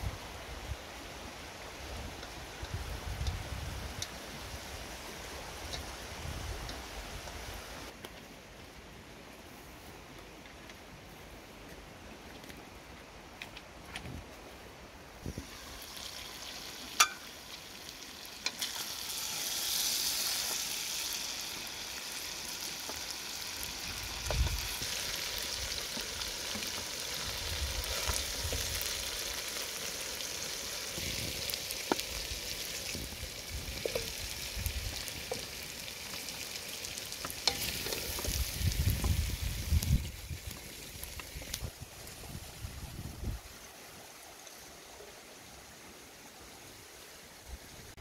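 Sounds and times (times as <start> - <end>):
food sizzling in metal pot: 15.3 - 43.1
metallic pot lid clink: 17.0 - 17.3.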